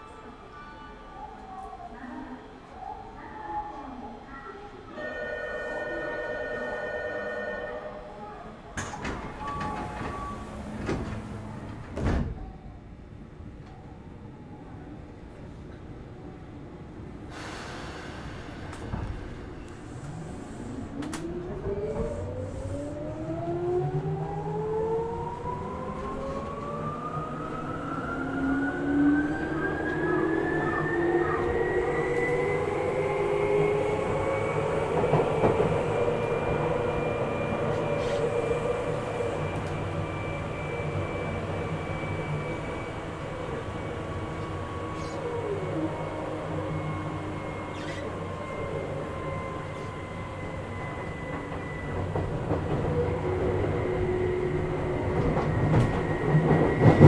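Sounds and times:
running train rumble: 28.2s - 57.0s.

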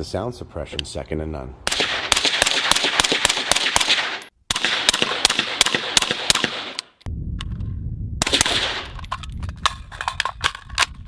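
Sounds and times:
rapid suppressed rifle shots: 1.7s - 6.8s
low rumble: 7.1s - 11.0s.

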